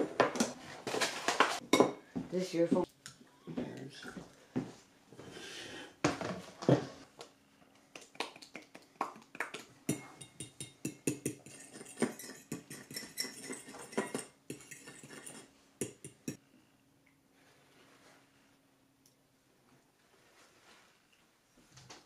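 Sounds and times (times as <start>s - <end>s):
fork clinking against bowl: 9.9s - 16.4s.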